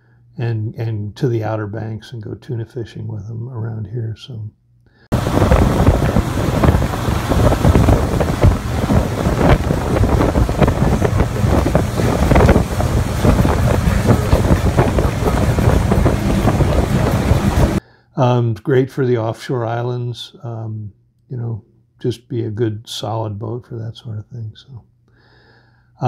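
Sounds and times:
motorboat engine: 5.1 - 17.8
rushing wake water: 5.1 - 17.8
wind buffeting microphone: 5.1 - 17.8.

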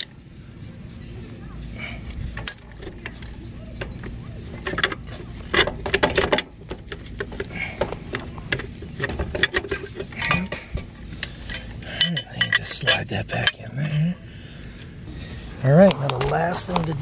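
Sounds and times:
chain rattling against metal bars: 2.3 - 7.7, 9.0 - 14.0.

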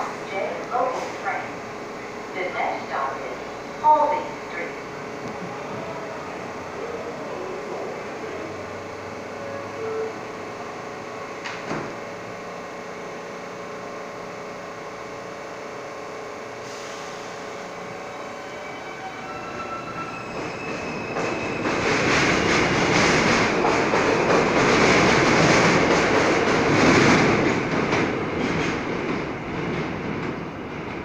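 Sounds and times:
train doors shutting: 0.0 - 12.3, 16.6 - 31.0
train motor tones: 0.0 - 12.3
subway train hum: 0.0 - 31.0
train wheel noise: 0.0 - 31.0.

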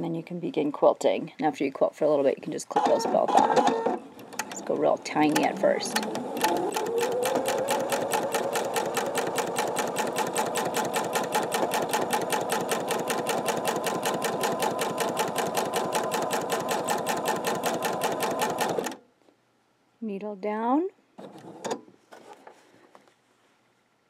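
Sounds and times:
sewing machine stitching: 2.7 - 19.0.

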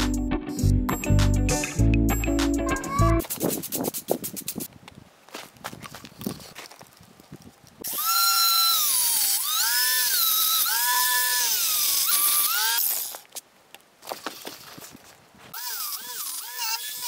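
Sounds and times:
angle grinder cutting steel: 7.8 - 13.2, 15.5 - 17.0.

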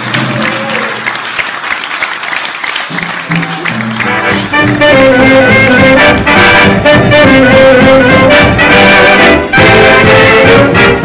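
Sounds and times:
swing jazz with brass horns: 4.0 - 11.0.

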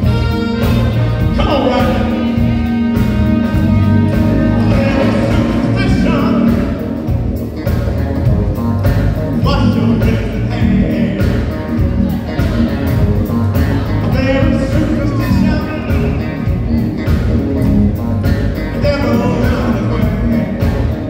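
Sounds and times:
trumpet and saxophone: 0.0 - 7.4
drum kit: 0.0 - 21.0
electric guitar: 0.0 - 21.0
keyboards: 0.0 - 21.0
person singing: 4.1 - 7.0, 9.4 - 16.5.

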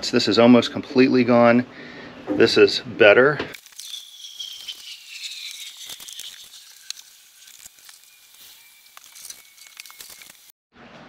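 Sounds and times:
foam fizzing and crackling: 3.6 - 10.6
thin high whistle falling: 3.8 - 10.4.

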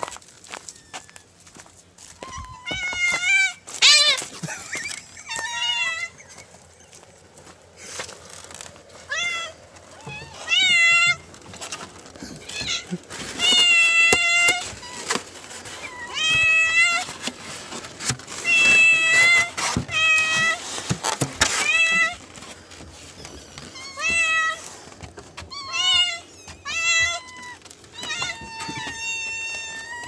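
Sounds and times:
cats meowing: 2.2 - 6.7, 9.0 - 17.2, 18.4 - 20.6, 21.4 - 30.0.

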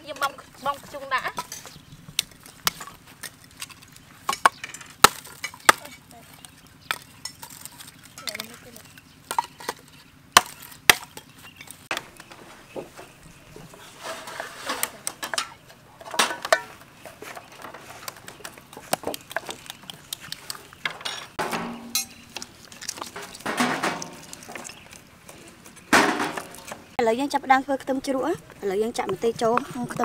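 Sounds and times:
bowls set down on metal trays: 14.0 - 17.8, 20.9 - 22.3, 23.1 - 24.3.

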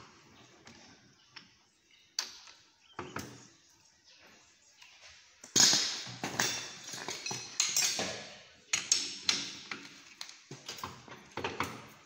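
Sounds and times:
metal tools clanking on chuck: 5.6 - 9.5.

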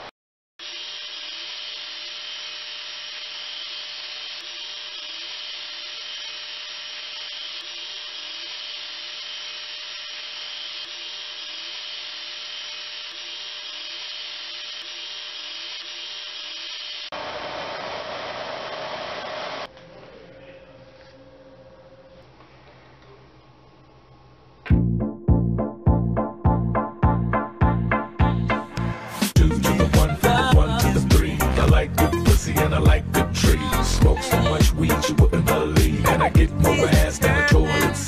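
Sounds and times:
laser engraver fans rushing: 0.6 - 19.7
louder machine noise: 0.6 - 19.7
quiet machine hum: 19.6 - 24.7.

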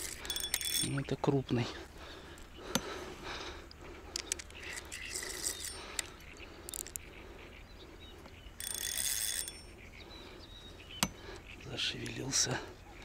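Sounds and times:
fishing reel drag buzzing: 0.0 - 1.0, 4.6 - 6.1, 8.6 - 9.8
fishing reel clicks and rattles: 0.0 - 1.1, 4.2 - 6.1, 6.7 - 7.0, 8.6 - 9.7.

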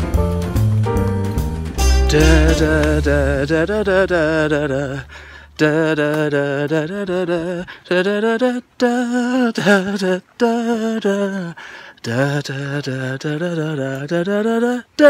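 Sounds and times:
man humming a tune: 1.8 - 10.1.

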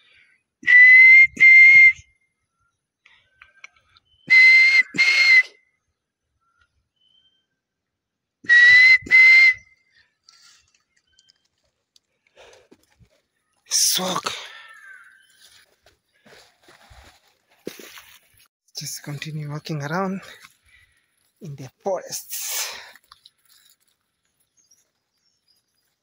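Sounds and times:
person whistling bird call: 0.6 - 2.1, 4.0 - 5.6, 8.5 - 9.9.

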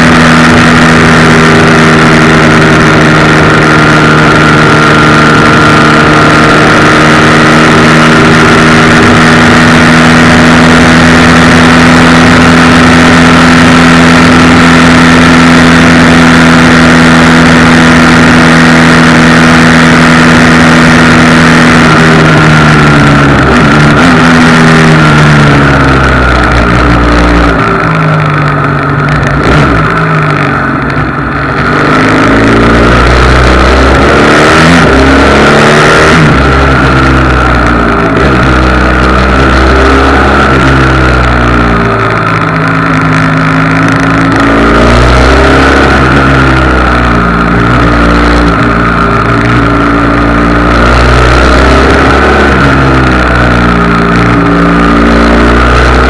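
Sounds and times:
motorcycle engine: 0.0 - 56.0.

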